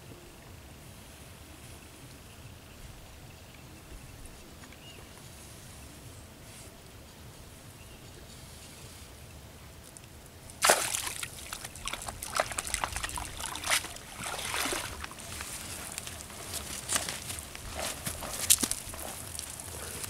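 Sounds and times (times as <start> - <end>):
water running off net: 10.5 - 18.9
water splashing and sloshing: 10.5 - 19.7.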